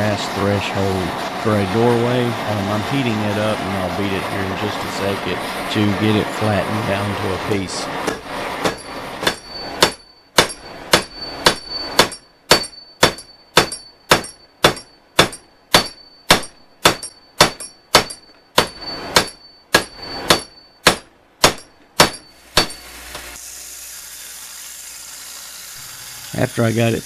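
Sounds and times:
hammer beating metal: 7.9 - 22.9
steady hiss: 22.4 - 27.0.

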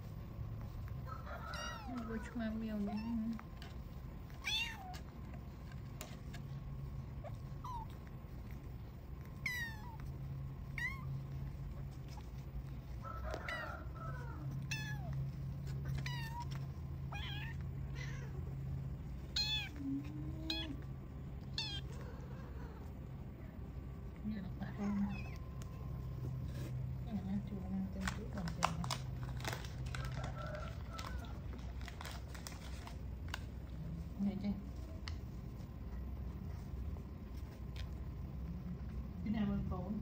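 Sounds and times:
kitten mewing: 9.2 - 12.2, 13.3 - 18.6, 19.2 - 23.1.

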